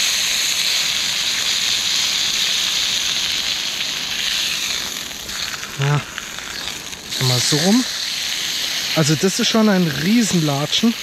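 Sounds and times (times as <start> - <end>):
meat sizzling in a frying pan: 0.0 - 11.0.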